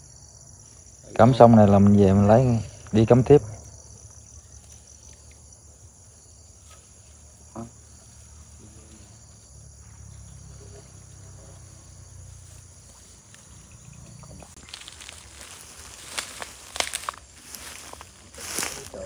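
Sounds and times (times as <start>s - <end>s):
insects chirring: 0.0s - 19.0s
dry grass rustling: 10.6s - 19.0s
footsteps through vegetation: 11.0s - 19.0s.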